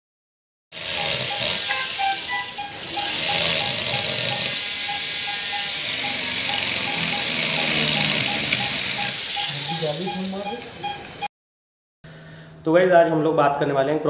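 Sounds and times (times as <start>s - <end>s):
cranial drill hissing: 0.7s - 11.2s
short repeating tone: 0.9s - 11.3s.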